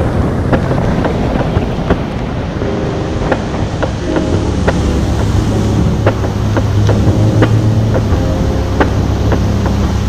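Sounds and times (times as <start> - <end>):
low boat engine drone: 0.0 - 10.0
wind rushing over microphone: 0.0 - 10.0.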